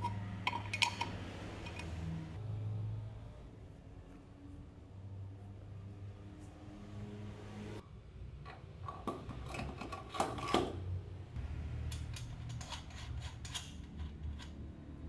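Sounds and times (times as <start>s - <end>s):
metallic clicks and rattles: 0.0s - 2.0s, 11.9s - 14.6s.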